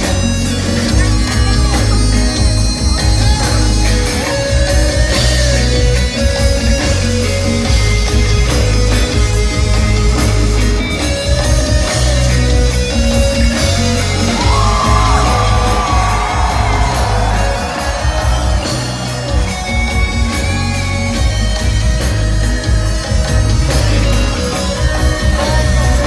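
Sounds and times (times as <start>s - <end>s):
bass: 0.0s - 26.0s
electric guitar: 0.0s - 26.0s
reggae band playing: 0.0s - 26.0s
drum beat: 14.2s - 24.0s.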